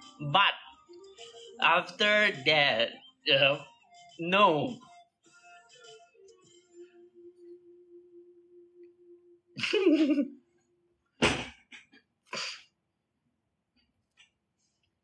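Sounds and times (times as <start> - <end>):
man laughing: 9.6 - 10.3.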